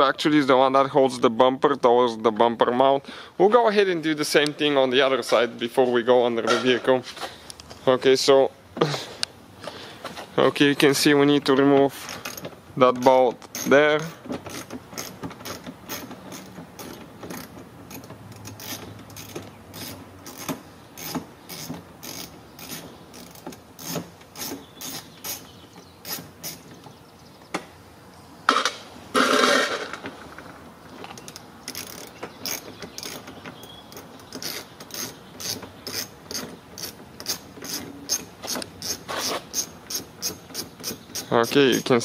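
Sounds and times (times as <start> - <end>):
ratchet clicking: 13.4 - 26.7, 31.2 - 42.0
metal clatter: 28.5 - 39.1.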